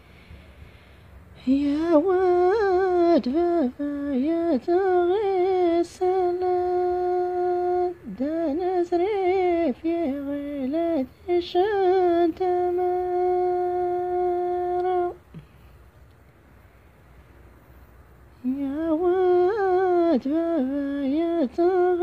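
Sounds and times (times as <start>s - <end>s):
woman singing unaccompanied: 1.4s - 15.5s, 18.3s - 22.0s.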